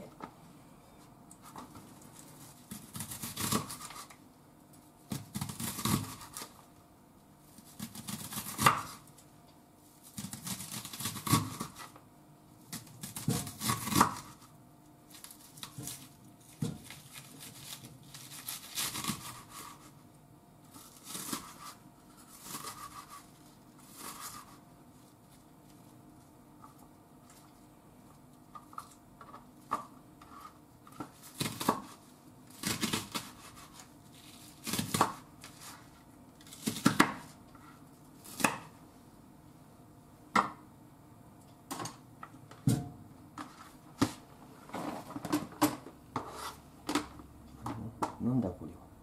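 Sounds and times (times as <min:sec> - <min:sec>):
knife slicing onion on board: 0:02.6 - 0:04.1, 0:05.1 - 0:06.6, 0:07.6 - 0:09.2, 0:10.1 - 0:12.0, 0:12.7 - 0:14.5, 0:15.6 - 0:20.0, 0:20.7 - 0:24.6, 0:28.8 - 0:38.8, 0:46.2 - 0:47.0.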